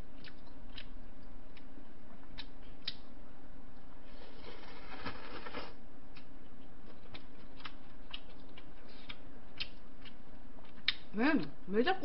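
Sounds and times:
chewing with wet mouth clicks: 0:00.1 - 0:03.1, 0:06.1 - 0:11.6.

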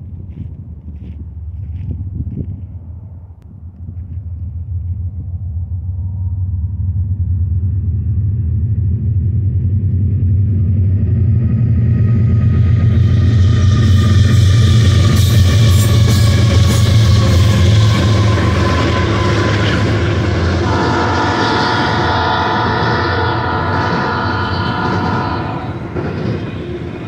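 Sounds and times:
diesel locomotive engine rumble: 0:00.0 - 0:27.0
train wheels on rails: 0:00.0 - 0:27.0
rolling container cars: 0:03.0 - 0:27.0
high ringing tone: 0:15.4 - 0:27.0.

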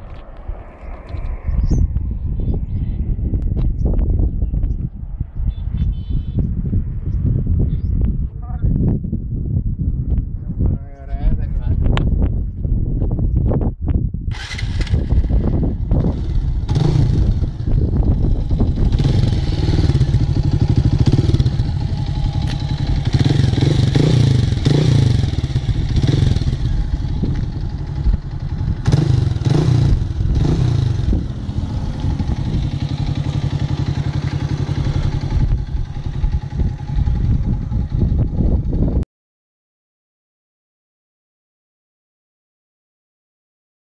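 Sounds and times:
motorcycle engine idling and revving: 0:14.3 - 0:39.0.

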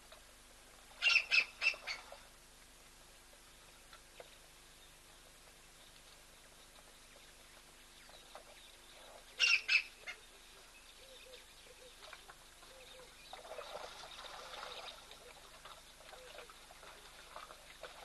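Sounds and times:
sharp high-pitched calls: 0:01.0 - 0:02.0, 0:09.4 - 0:09.9.

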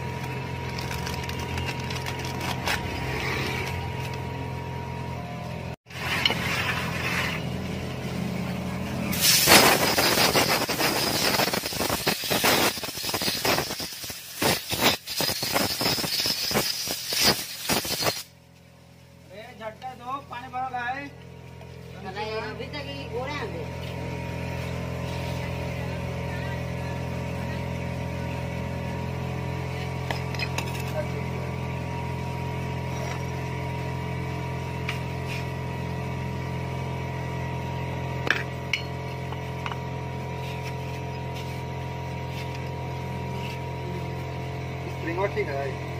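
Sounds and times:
compressed air blow gun hissing: 0:09.1 - 0:18.3
metal tools clinking on concrete: 0:29.7 - 0:31.2, 0:38.2 - 0:39.9.

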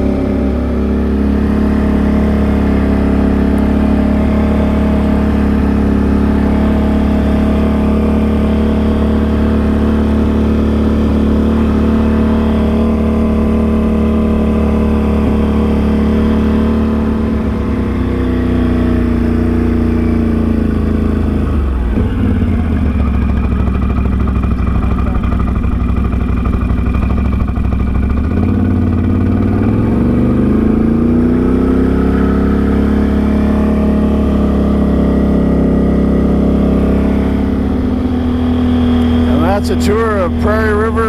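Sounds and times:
atv engine running: 0:00.0 - 0:41.0.

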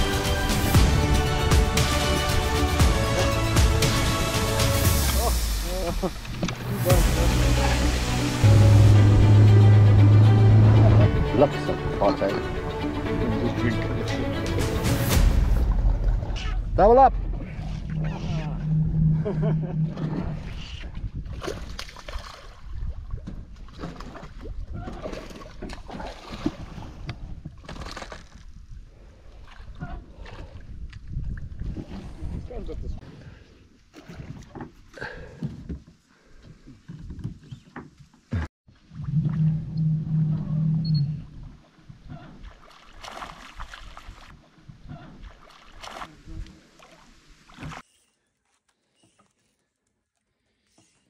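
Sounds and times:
steady low rumble: 0:00.6 - 0:21.3
steady low hum: 0:15.6 - 0:20.8
fish splashing at water surface: 0:42.4 - 0:44.4, 0:45.2 - 0:47.8.

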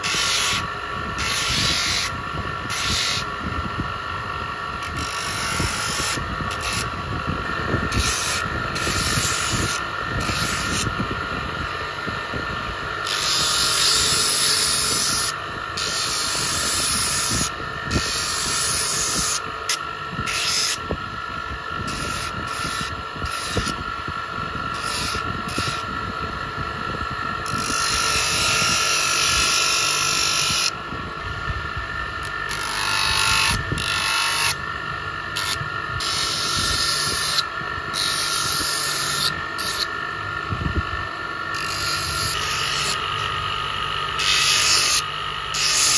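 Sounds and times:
electric motor whine: 0:00.0 - 0:45.9.

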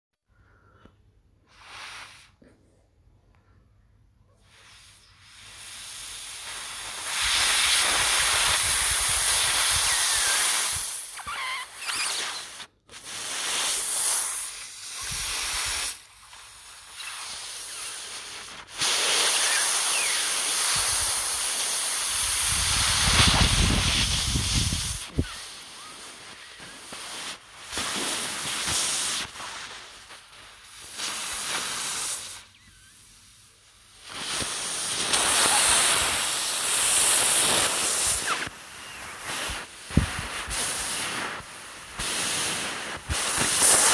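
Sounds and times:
person imitating steam train: 0:05.7 - 0:16.0, 0:16.8 - 0:27.2, 0:35.0 - 0:41.3.

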